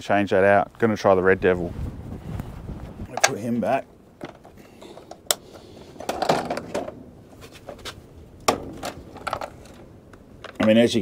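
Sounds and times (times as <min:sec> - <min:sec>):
handling noise: 0:02.4 - 0:11.0.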